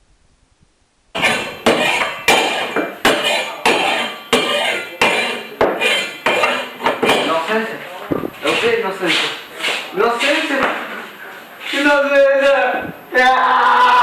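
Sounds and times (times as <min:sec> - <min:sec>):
hammer strikes ringing: 0:01.2 - 0:07.4.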